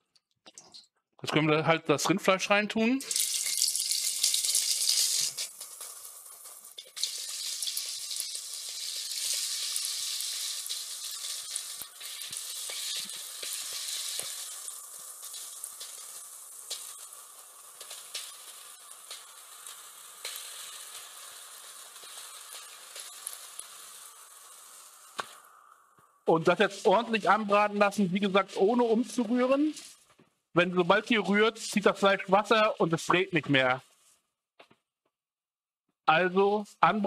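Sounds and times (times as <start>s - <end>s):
meat sizzling in a pot: 3.0s - 30.0s.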